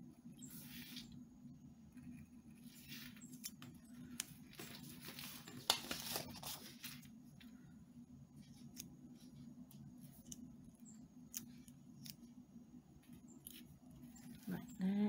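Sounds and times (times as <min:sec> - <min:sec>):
paper rustling and scraping: 0:00.5 - 0:01.2, 0:02.6 - 0:03.6, 0:04.4 - 0:07.1.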